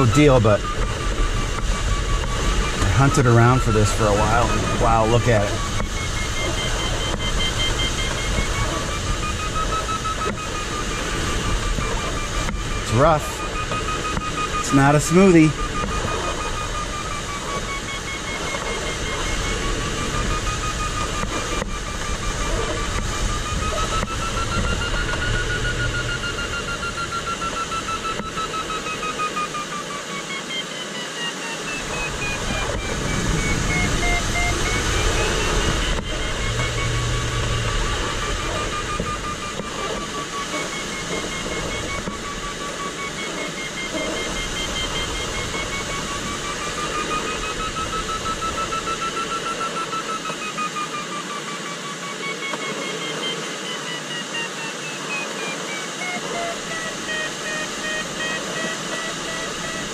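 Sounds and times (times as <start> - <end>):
airflow noise around cockpit: 0.0 - 59.9
variometer beeping: 0.0 - 59.9.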